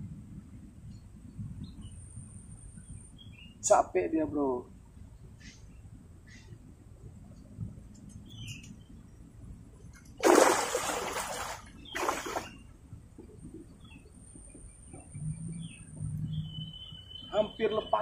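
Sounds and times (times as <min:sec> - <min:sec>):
faint bird chirps: 0:05.3 - 0:06.6, 0:08.1 - 0:09.2, 0:13.5 - 0:18.0
fish splashing at water surface: 0:10.2 - 0:12.6.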